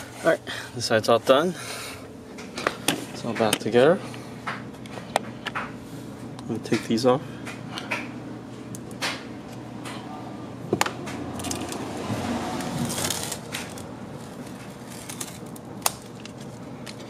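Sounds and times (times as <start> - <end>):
plastic film crinkling: 12.7 - 17.0.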